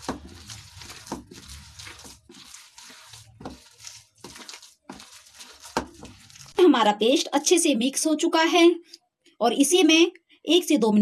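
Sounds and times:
wet batter squelching in bowl: 0:00.0 - 0:06.6.

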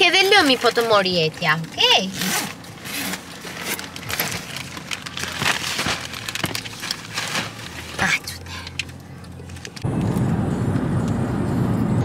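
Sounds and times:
crisp packet crinkling: 0:03.2 - 0:09.8.

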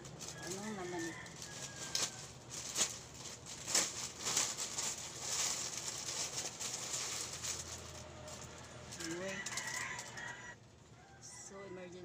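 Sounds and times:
plastic and bubble wrap crinkling: 0:00.0 - 0:10.6.

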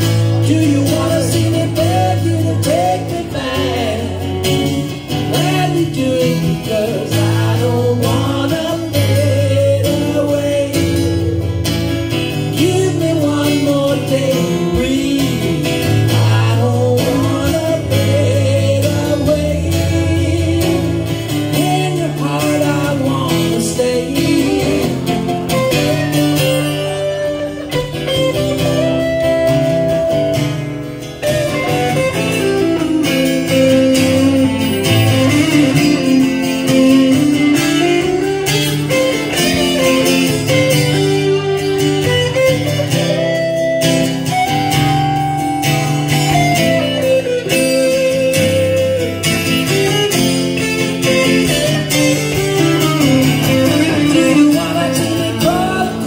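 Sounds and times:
electric guitar solo: 0:00.0 - 0:56.0
strummed acoustic guitar: 0:00.0 - 0:56.0.

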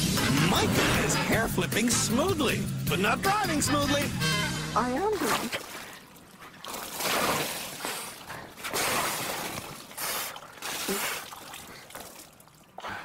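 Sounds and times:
water sloshing and splashing: 0:04.8 - 0:13.0.

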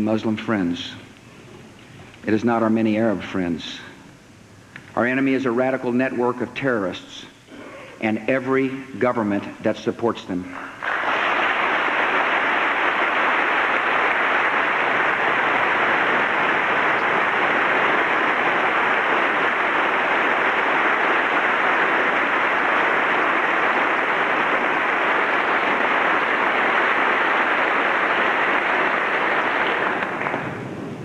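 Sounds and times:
crowd applauding: 0:10.8 - 0:30.8.

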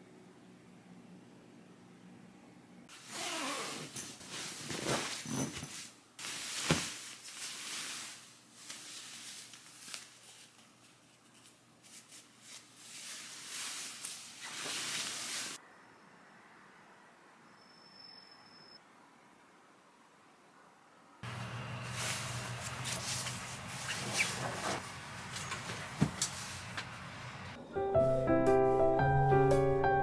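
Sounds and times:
duvet rustling: 0:02.9 - 0:15.6, 0:21.3 - 0:26.7.

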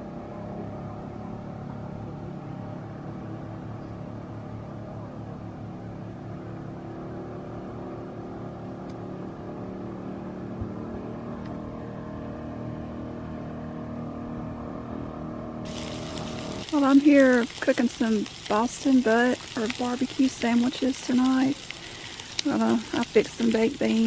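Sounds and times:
outboard motor running: 0:13.2 - 0:24.0.

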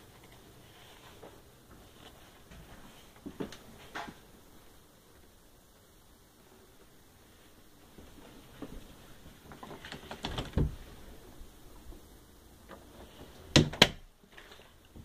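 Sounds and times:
door clicks and rattles: 0:09.6 - 0:10.8.

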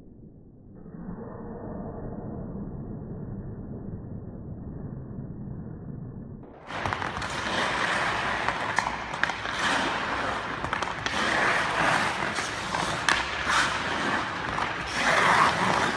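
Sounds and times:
skate blades scraping ice: 0:06.6 - 0:15.9
stick clicking on puck: 0:06.7 - 0:15.9.

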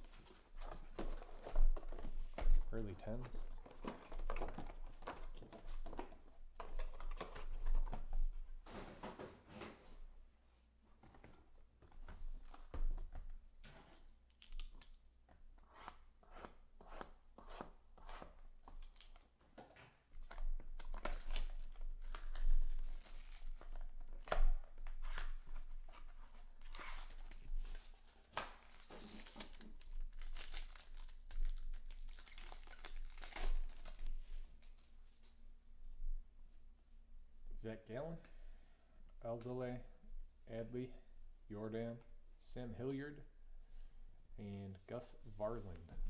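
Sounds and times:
foil pack crinkling: 0:20.7 - 0:35.2
plastic shrink-wrap tearing: 0:28.6 - 0:34.9.

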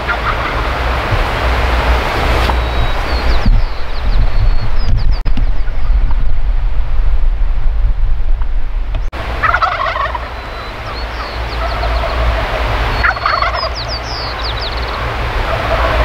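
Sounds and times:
turkeys gobbling: 0:00.0 - 0:00.9, 0:09.4 - 0:14.6, 0:15.4 - 0:16.0
wind rumble on microphone: 0:00.0 - 0:16.0.

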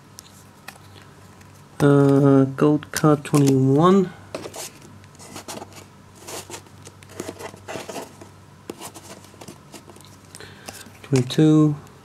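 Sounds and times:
trading cards clicking and sliding: 0:02.9 - 0:03.8.

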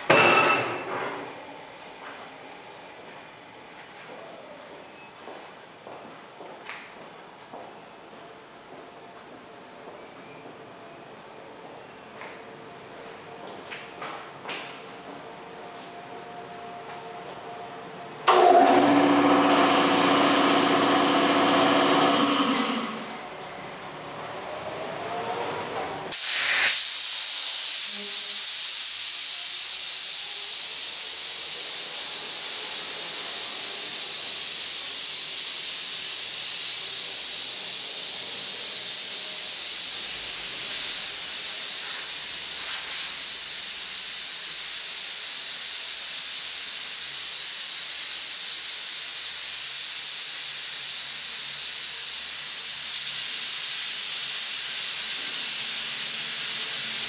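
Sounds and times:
compressed air hissing: 0:26.1 - 0:57.0.

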